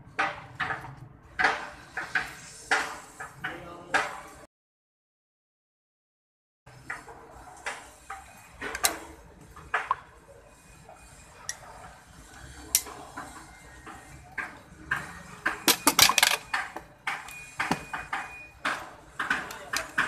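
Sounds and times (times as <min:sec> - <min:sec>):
handling clicks and knocks: 0:14.3 - 0:20.0.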